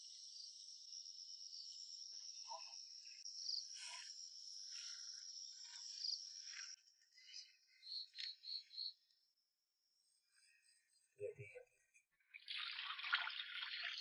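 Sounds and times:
high-pitched insect chorus: 0.0s - 9.0s.

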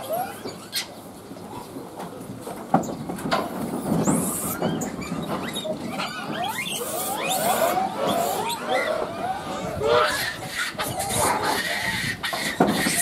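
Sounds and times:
monkeys squeaking and chirping: 4.2s - 13.0s.

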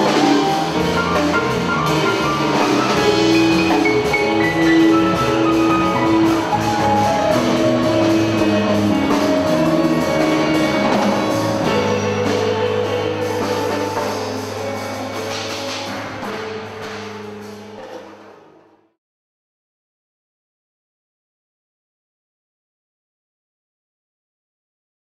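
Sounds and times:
jazz quartet playing: 0.0s - 18.8s.

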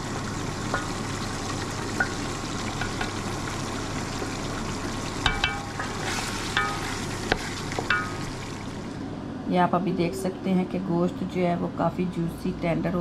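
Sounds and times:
meat sizzling in a pot: 0.0s - 9.0s
spoon clinking against pot: 5.2s - 7.0s, 7.8s - 8.2s.

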